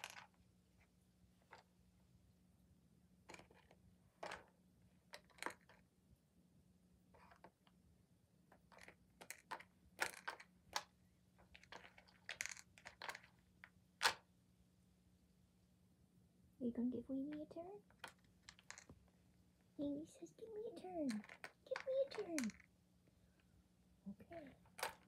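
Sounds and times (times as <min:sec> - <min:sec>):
plastic puzzle toy clicking: 0:00.0 - 0:00.4, 0:05.1 - 0:05.8, 0:08.5 - 0:14.2, 0:17.9 - 0:19.0, 0:20.8 - 0:22.7, 0:24.3 - 0:25.0.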